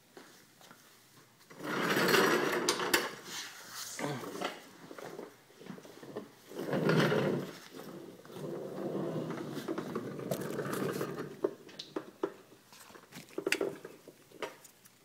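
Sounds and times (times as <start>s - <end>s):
person rustling and scraping: 3.1s - 11.4s.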